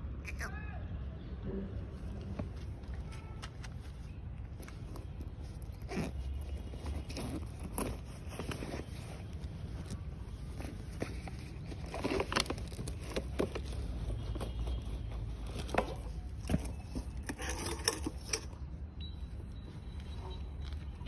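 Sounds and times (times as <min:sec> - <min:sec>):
cloth bag rustling: 0:03.8 - 0:18.4.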